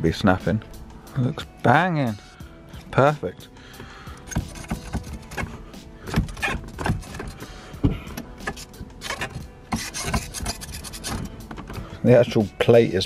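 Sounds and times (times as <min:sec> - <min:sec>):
handbrake lever clicks and clunks: 0:04.2 - 0:10.4, 0:11.0 - 0:12.4.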